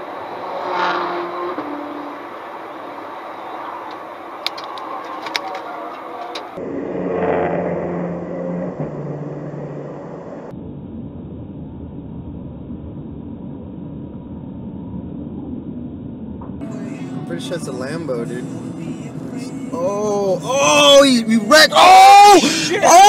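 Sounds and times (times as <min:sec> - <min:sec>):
road and engine noise: 0:00.0 - 0:23.0
engine revving: 0:06.5 - 0:10.5.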